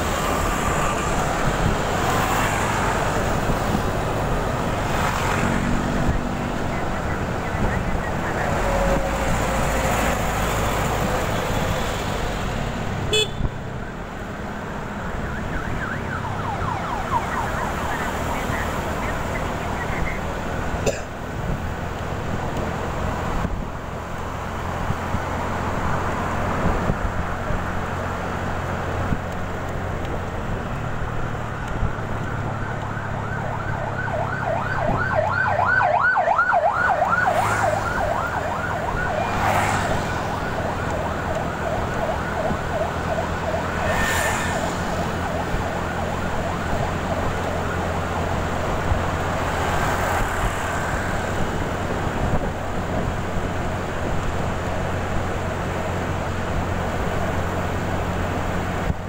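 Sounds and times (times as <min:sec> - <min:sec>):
wind noise: 0:00.0 - 0:13.7, 0:48.2 - 0:59.0
siren yelping: 0:15.3 - 0:20.2, 0:32.6 - 0:43.9.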